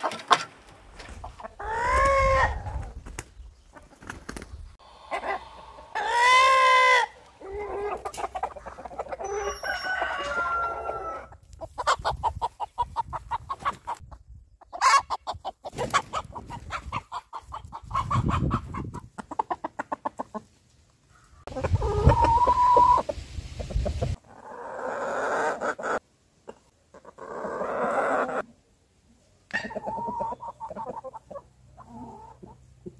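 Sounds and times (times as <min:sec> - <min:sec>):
hens clucking: 0:00.0 - 0:32.9
rooster crowing: 0:09.2 - 0:11.3.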